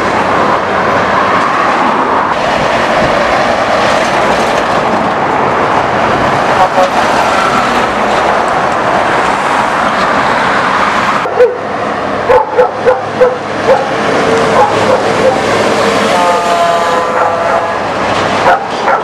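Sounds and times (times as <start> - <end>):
truck engine passing: 0.0 - 19.0
dog barking: 11.2 - 11.6, 12.3 - 15.5, 17.1 - 17.6, 18.4 - 19.0.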